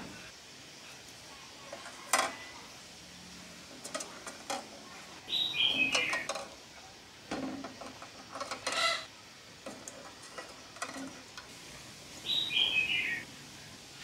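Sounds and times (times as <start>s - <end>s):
bird chirp: 5.3s - 6.3s, 12.2s - 13.3s.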